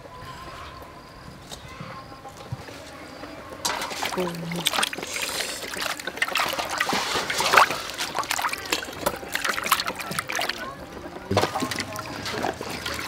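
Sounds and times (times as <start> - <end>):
water splashing in metal basin: 3.6 - 13.0
hands scrubbing fish: 3.7 - 13.0.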